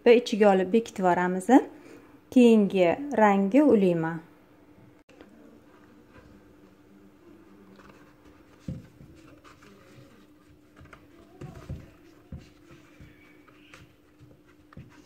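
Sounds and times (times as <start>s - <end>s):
crochet hook scratching yarn: 7.8s - 15.0s.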